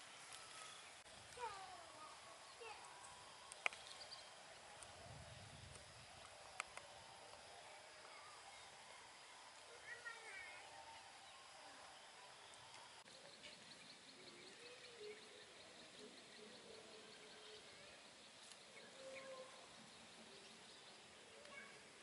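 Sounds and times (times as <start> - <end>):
birds: 0.0 - 22.0
insects: 0.0 - 22.0
high chirping ticks: 2.8 - 4.9.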